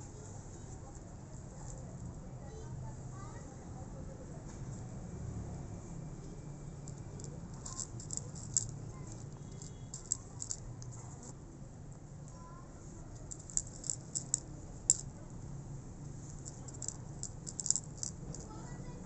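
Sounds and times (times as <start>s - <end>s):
cat crunching dry kibble: 7.0s - 11.3s, 13.2s - 15.0s, 16.3s - 18.5s.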